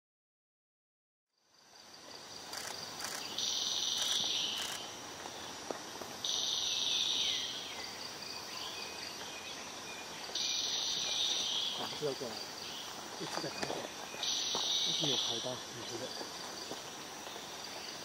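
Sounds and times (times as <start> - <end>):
high-pitched insect tone: 1.4 - 18.0
harsh insect buzz: 1.5 - 5.2.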